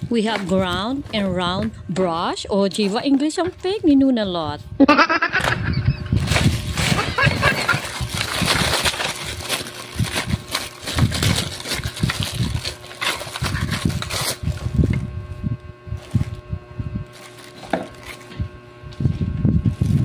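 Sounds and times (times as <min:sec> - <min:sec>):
plastic packaging crinkling: 0:00.0 - 0:03.9, 0:06.2 - 0:15.1, 0:16.0 - 0:18.6, 0:19.7 - 0:20.0.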